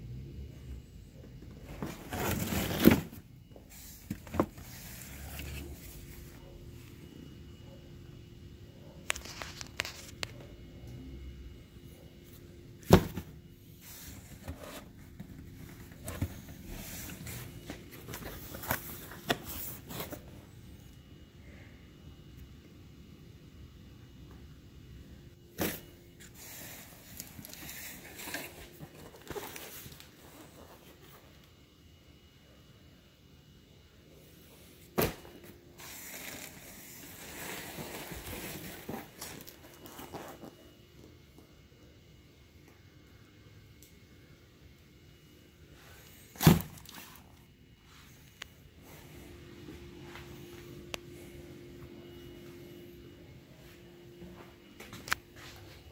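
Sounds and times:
cardboard rustling and scraping: 1.5 - 6.5, 12.8 - 20.5, 25.6 - 31.4, 35.0 - 40.7.

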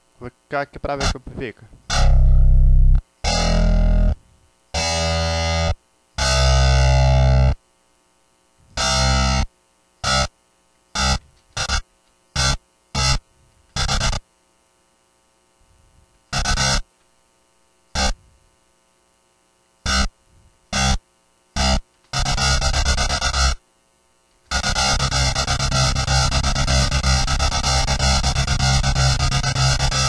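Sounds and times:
distorted electric guitar stabs: 0.9 - 4.2, 4.8 - 7.6, 8.8 - 9.4, 10.0 - 10.3, 11.0 - 11.8, 12.4 - 13.2, 13.8 - 14.2, 16.4 - 16.8, 18.0 - 18.2, 19.9 - 20.1, 20.8 - 21.0, 21.6 - 23.6, 24.5 - 30.0.

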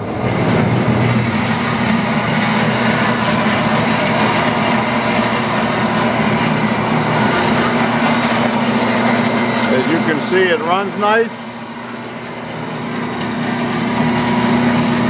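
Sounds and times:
bandsaw running: 0.0 - 15.0.

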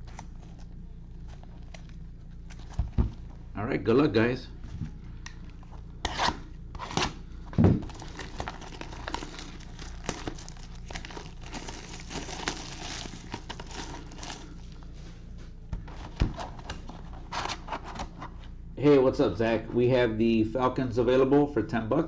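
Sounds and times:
shrink wrap tearing: 7.8 - 14.8
plastic wrap crinkling: 7.8 - 15.0.

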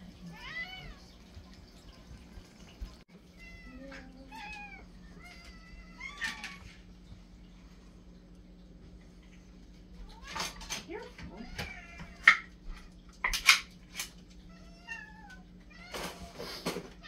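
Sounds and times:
cats meowing: 0.2 - 1.2, 3.3 - 6.9, 9.9 - 12.9, 14.4 - 17.0.

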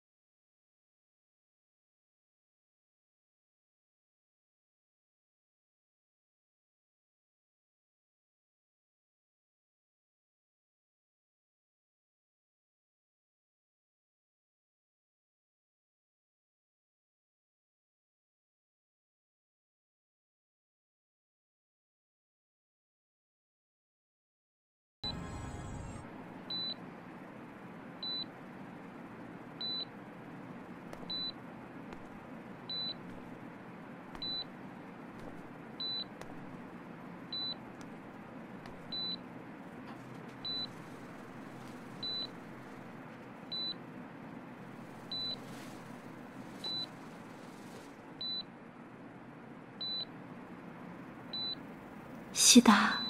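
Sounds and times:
patient monitor beeping: 25.1 - 26.8, 29.6 - 31.4, 32.7 - 33.4, 34.1 - 36.2, 36.8 - 37.8, 38.7 - 39.3, 40.4 - 43.8, 44.8 - 48.5, 49.8 - 50.2, 51.3 - 52.1.

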